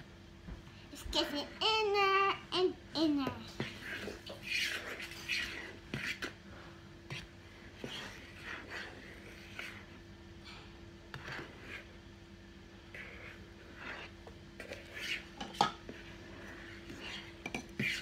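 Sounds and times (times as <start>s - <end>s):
faint steady hum: 0.0s - 18.0s
fork stirring thick batter: 3.2s - 18.0s.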